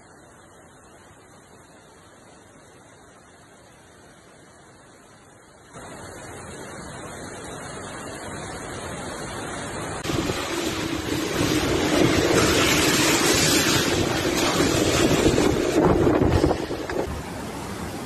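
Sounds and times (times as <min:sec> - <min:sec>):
heavy rain and rushing floodwater: 0:00.0 - 0:18.0
wind buffeting microphone: 0:10.0 - 0:18.0.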